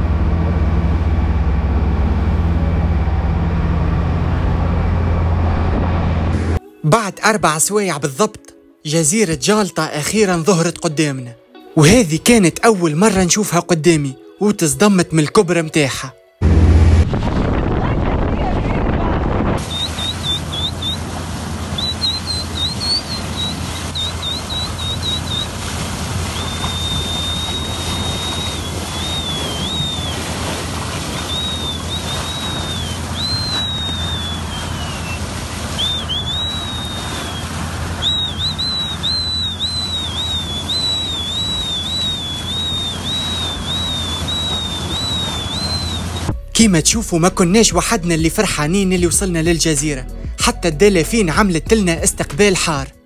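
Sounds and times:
low hum: 0:00.0 - 0:06.6, 0:16.4 - 0:50.4
water rushing: 0:00.0 - 0:06.6, 0:16.4 - 0:51.3
dolphins whistling: 0:19.6 - 0:46.4.

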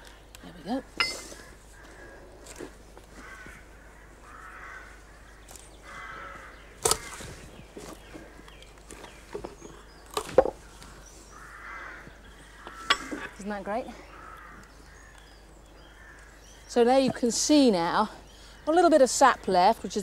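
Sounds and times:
crows cawing: 0:01.0 - 0:07.5, 0:10.8 - 0:16.6.

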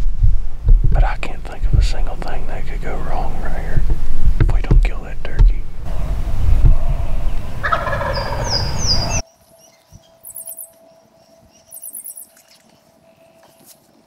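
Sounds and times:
low rumble: 0:00.0 - 0:09.2
turkey gobbling: 0:06.7 - 0:09.2.

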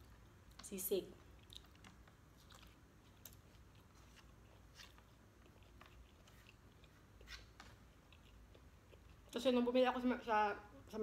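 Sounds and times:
close-up chewing: 0:01.2 - 0:09.4.

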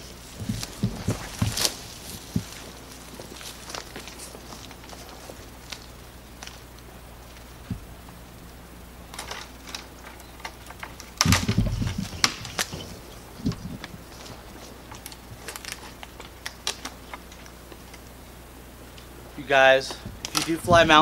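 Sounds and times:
footsteps crunching through dry leaves: 0:00.0 - 0:07.9, 0:11.2 - 0:17.1
thump and rustle: 0:00.4 - 0:02.7, 0:10.8 - 0:14.4.

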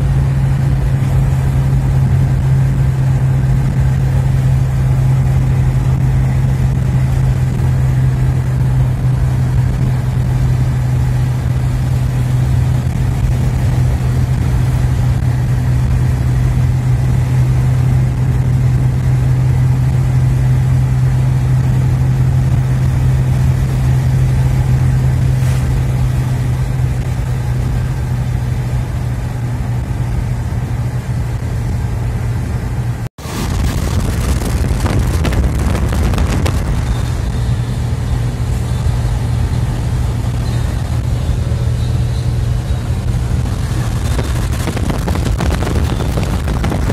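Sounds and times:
car engine drone: 0:00.0 - 0:46.9
rough noise: 0:21.1 - 0:29.8, 0:32.9 - 0:46.9
tyre noise on wet asphalt: 0:33.2 - 0:46.9.

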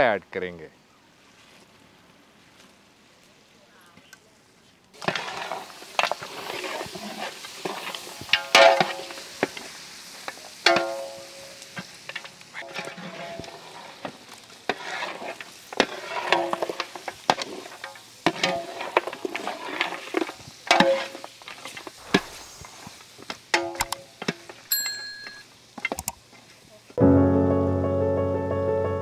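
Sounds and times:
food sizzling: 0:04.9 - 0:27.0
metal spatula scraping pot: 0:12.6 - 0:14.0, 0:14.7 - 0:16.8, 0:17.4 - 0:21.8.

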